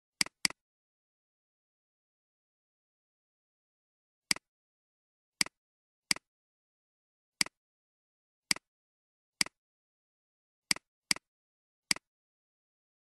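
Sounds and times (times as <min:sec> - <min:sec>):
computer mouse clicks: 0:00.2 - 0:00.6, 0:05.4 - 0:06.3, 0:07.4 - 0:07.6, 0:10.7 - 0:11.3.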